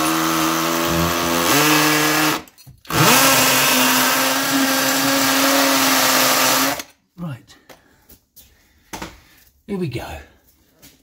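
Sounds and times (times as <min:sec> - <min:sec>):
drill whining into concrete: 0:00.0 - 0:06.9.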